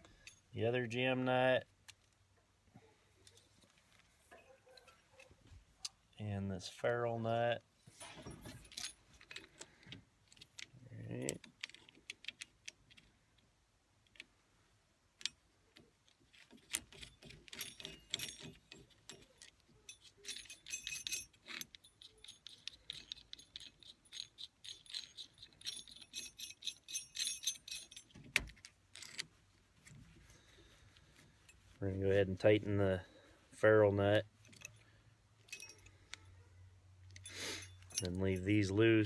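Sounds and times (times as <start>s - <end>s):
metal nuts clicking and rattling: 7.7s - 14.3s, 15.1s - 31.7s, 34.2s - 39.0s.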